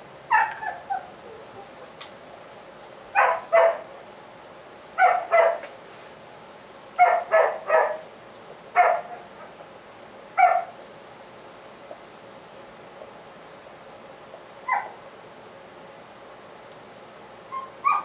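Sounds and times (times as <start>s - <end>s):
dog barking: 0.3s - 1.1s, 3.2s - 3.8s, 5.0s - 5.7s, 7.0s - 8.0s, 8.8s - 9.3s, 10.4s - 10.8s, 14.7s - 15.0s.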